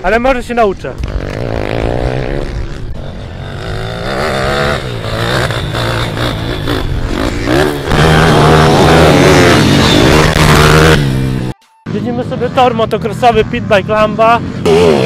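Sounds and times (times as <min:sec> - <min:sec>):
motorbike engine revving: 0:01.0 - 0:11.5, 0:14.2 - 0:15.0.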